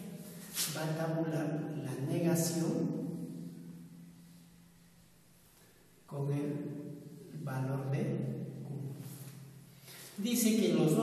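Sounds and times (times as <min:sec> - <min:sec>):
faint low hum: 0:00.0 - 0:11.0
man's voice: 0:10.2 - 0:11.0.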